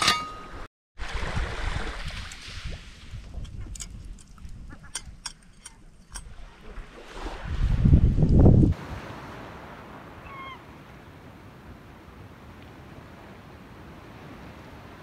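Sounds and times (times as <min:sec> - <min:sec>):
wind rumble on microphone: 0:01.0 - 0:09.7.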